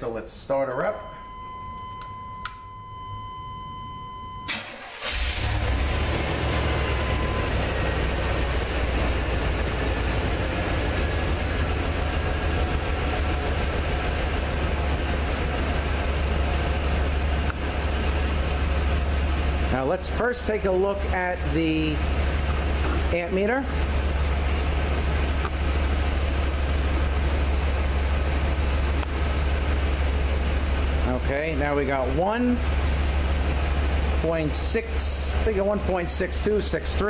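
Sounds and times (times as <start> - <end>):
electronic warning tone: 0.8 - 4.8, 6.1 - 8.2
van engine cranking and idling: 1.1 - 37.0.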